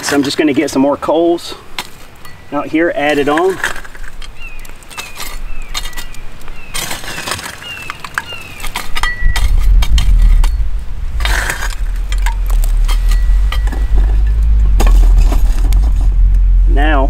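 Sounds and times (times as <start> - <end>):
shovel scraping coals: 0.0 - 16.3
coals clinking and crunching: 0.0 - 16.5
low rumble: 9.0 - 17.0.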